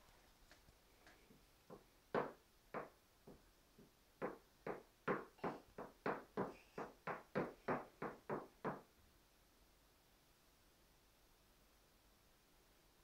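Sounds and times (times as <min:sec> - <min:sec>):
sharp knocks: 0:01.7 - 0:03.4.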